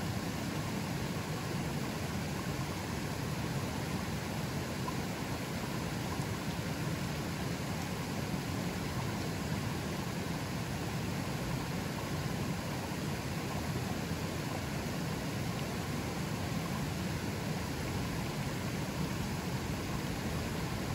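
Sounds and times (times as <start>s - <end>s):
river water rushing: 0.0s - 20.9s.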